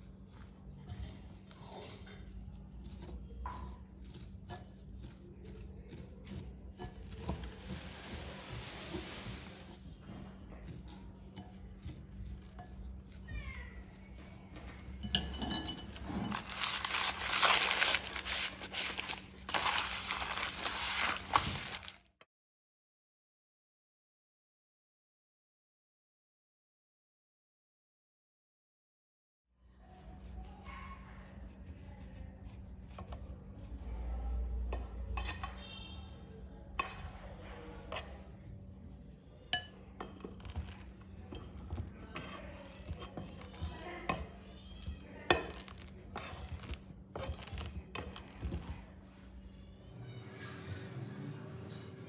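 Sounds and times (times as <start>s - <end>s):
paper wrapper scraping metal mould: 0.0s - 13.2s, 15.9s - 22.1s, 40.2s - 48.8s
pastry strands rustling: 0.0s - 22.2s, 40.0s - 49.4s
spoon clinking glass bowl: 14.9s - 18.4s, 39.5s - 41.8s.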